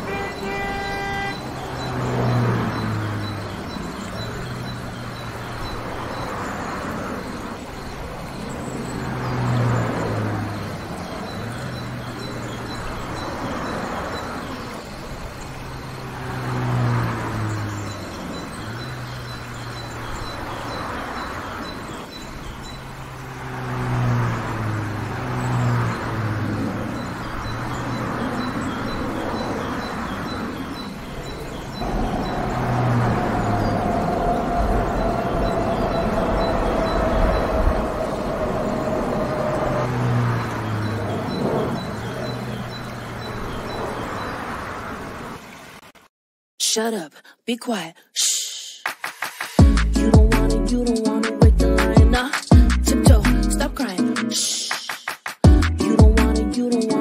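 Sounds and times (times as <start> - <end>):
vehicles and aircraft moving past: 0.0 - 46.0
low engine hum: 22.3 - 44.2.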